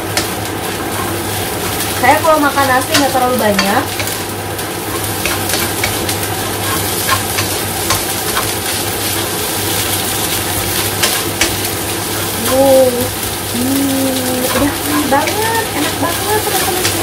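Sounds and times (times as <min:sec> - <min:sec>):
rice sizzling in a wok: 0:00.0 - 0:17.0
spatula scraping pan: 0:00.1 - 0:04.3, 0:04.9 - 0:09.4, 0:14.4 - 0:17.0.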